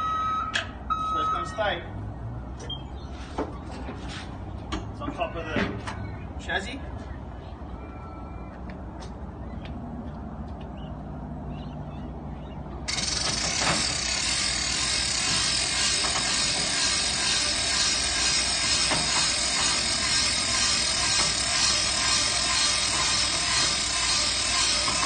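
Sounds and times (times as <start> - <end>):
ratcheting gear clatter: 12.9 - 25.0.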